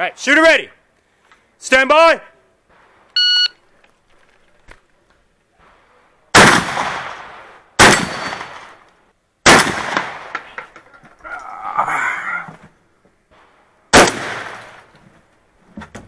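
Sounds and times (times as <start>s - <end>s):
shotgun shots echoing: 6.3s - 8.8s, 9.4s - 10.4s, 13.9s - 14.9s.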